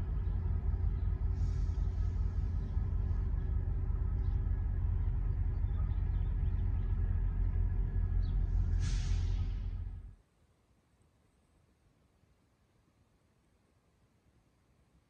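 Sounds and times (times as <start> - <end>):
diesel locomotive rumble: 0.0 - 10.2
brief air hiss: 8.7 - 9.8.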